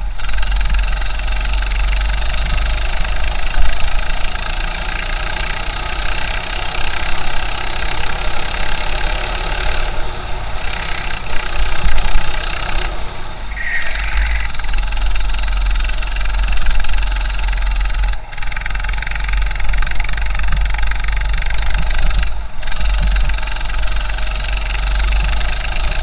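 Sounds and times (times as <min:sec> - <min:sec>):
go-kart engine running: 0:00.0 - 0:26.0.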